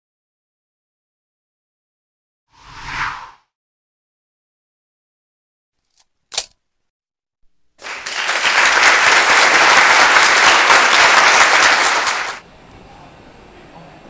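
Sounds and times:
audience applause: 7.8s - 12.4s.

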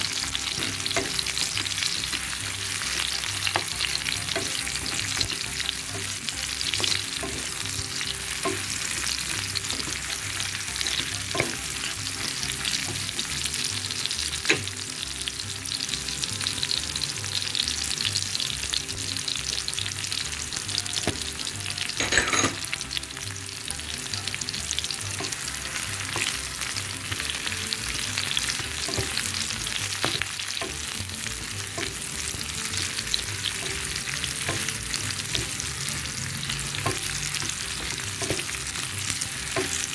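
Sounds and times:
food sizzling in hot oil: 0.0s - 39.9s.

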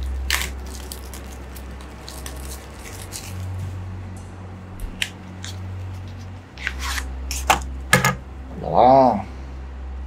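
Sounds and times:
plastic film crackling: 0.0s - 3.6s
steady low hum: 0.0s - 10.0s.

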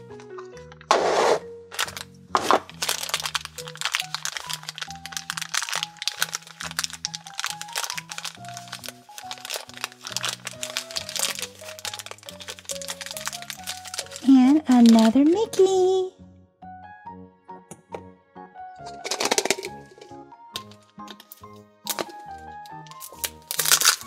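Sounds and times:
light background music: 0.0s - 24.0s
tissue paper crinkling: 1.1s - 15.6s, 22.9s - 24.0s.

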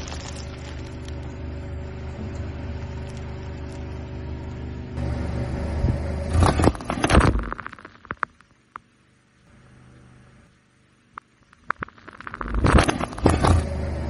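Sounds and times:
cans crushed under tyre: 0.0s - 1.4s
soda foam fizzing: 0.0s - 1.5s
car engine running: 0.0s - 8.2s, 11.7s - 14.0s.

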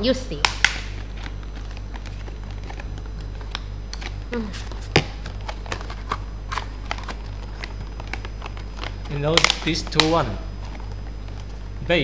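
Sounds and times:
sharp plastic snap: 0.4s - 0.9s.

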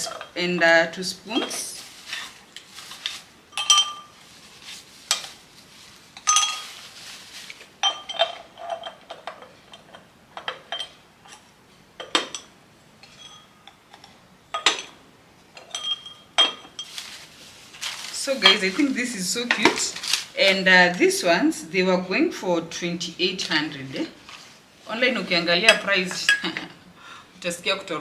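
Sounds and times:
glass jars clinking: 3.1s - 4.2s, 6.2s - 6.8s, 7.8s - 17.1s.

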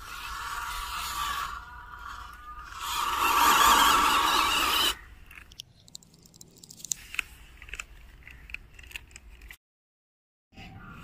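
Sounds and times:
toy car churning through mud: 0.0s - 5.0s
small clicks and ticks: 5.2s - 9.6s.

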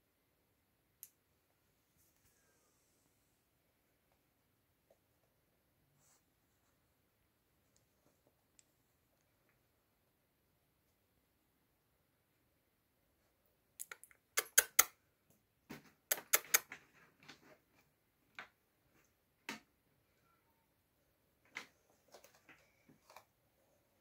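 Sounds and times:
sharp clicks and taps: 13.8s - 16.8s.

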